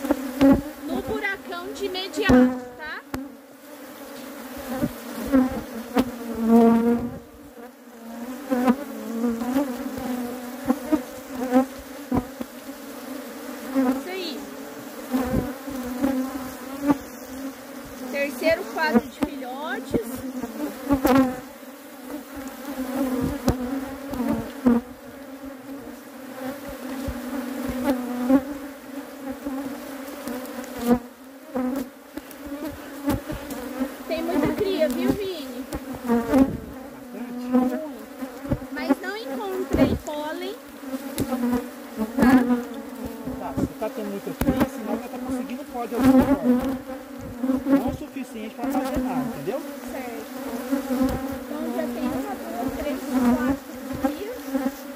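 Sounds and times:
honey bees buzzing: 0:00.0 - 0:54.9.

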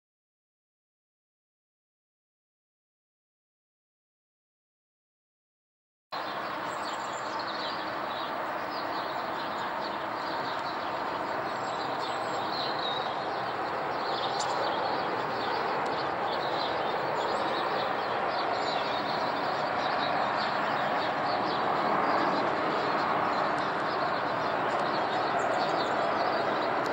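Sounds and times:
jet airliner flying overhead: 0:06.2 - 0:26.9.

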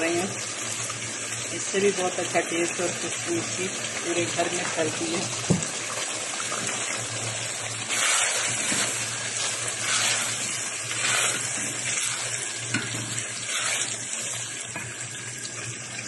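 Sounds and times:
gravy sizzling in a pan: 0:00.0 - 0:16.0
spatula stirring in pan: 0:07.8 - 0:14.9.

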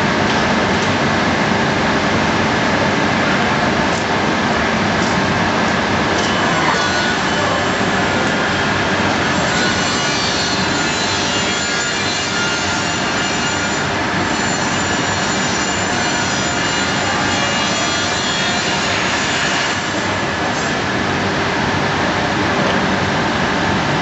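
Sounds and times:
faint machinery hum: 0:00.0 - 0:24.0.

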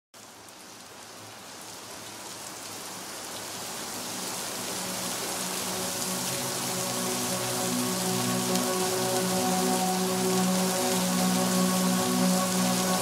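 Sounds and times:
steady rainfall: 0:00.2 - 0:13.0
low held musical notes: 0:05.5 - 0:13.0.

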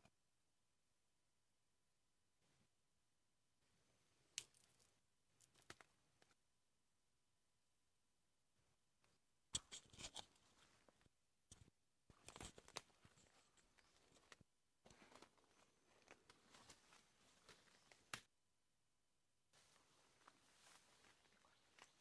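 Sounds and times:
twig snapping: 0:04.4 - 0:04.8
leaves and twigs rustling: 0:12.1 - 0:18.2, 0:19.6 - 0:22.0.

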